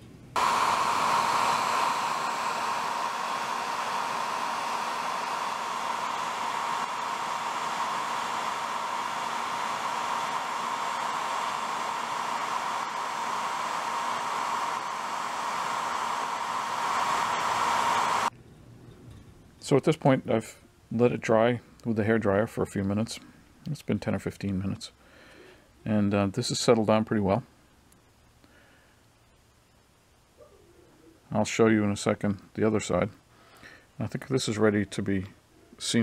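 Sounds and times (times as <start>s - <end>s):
hair dryer blowing air: 0.4s - 18.3s.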